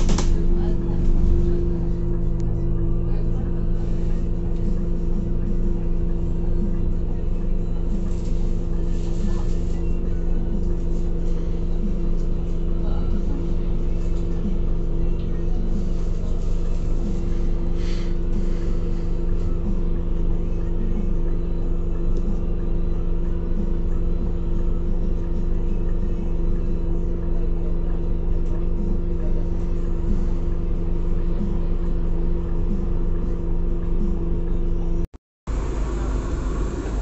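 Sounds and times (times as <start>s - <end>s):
bus engine idling: 0.2s - 12.3s, 35.5s - 37.0s.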